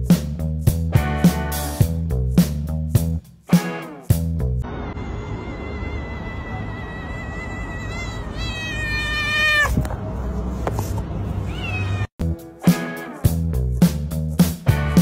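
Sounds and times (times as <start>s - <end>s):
beat-driven music: 0.0s - 4.6s, 12.2s - 15.0s
background music: 0.6s - 4.6s, 12.2s - 15.0s
cat meowing: 5.2s - 9.9s, 11.4s - 12.1s.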